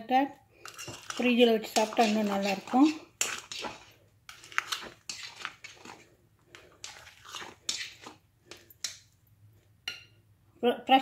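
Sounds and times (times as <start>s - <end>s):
spoon stirring in glass bowl: 0.6s - 9.1s.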